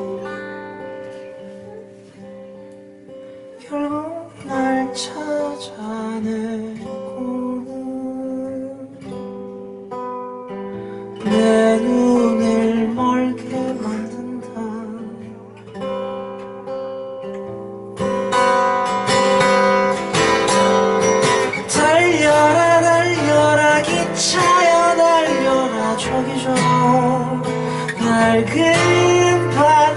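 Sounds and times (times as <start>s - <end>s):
man singing: 0.0s - 0.9s, 3.6s - 9.1s, 11.2s - 15.6s, 21.3s - 29.9s
acoustic guitar: 0.0s - 29.9s.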